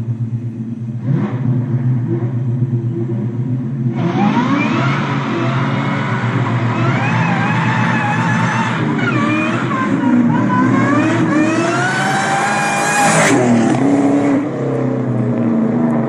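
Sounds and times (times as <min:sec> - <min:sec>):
car engine revving hard: 0:03.9 - 0:16.0
tires spinning: 0:03.9 - 0:16.0.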